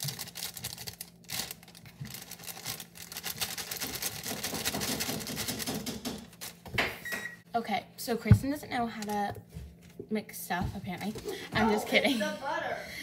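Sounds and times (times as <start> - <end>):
plastic bag crinkling: 0.0 - 6.7.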